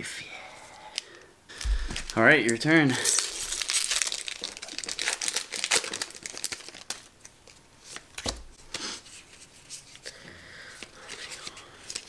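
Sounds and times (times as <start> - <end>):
foil wrapper tearing and crinkling: 1.6 - 8.2.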